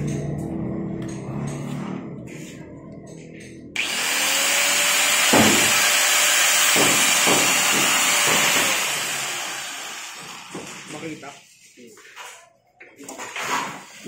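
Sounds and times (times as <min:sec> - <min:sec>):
angle grinder whining: 0:03.8 - 0:10.9.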